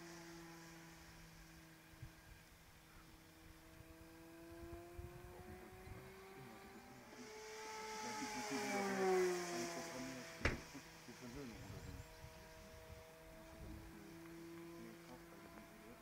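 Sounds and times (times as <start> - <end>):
model plane propeller droning: 0.0 - 16.0.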